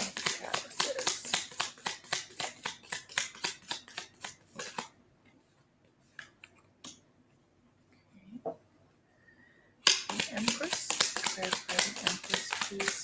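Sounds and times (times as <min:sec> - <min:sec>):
cards being shuffled: 0:00.0 - 0:04.9, 0:09.9 - 0:13.0.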